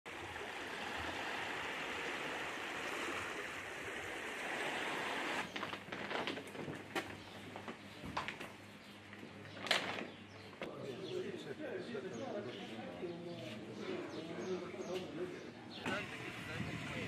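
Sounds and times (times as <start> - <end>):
sea water lapping in shallows: 0.1 - 5.5.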